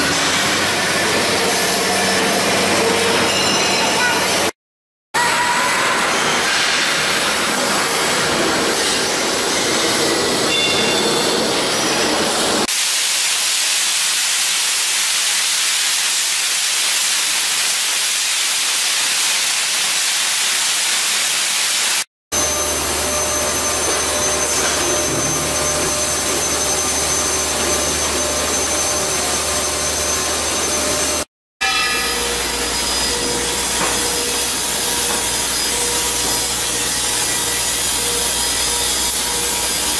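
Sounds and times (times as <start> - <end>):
shot-blasting machine running: 22.4 - 31.3, 32.0 - 39.9
steady machine hum: 22.4 - 31.3.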